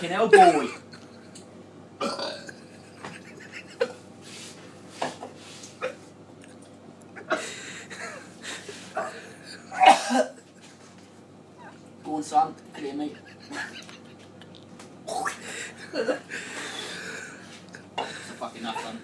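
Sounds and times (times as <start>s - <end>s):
man gagging and retching: 2.0s - 2.6s, 15.0s - 15.4s.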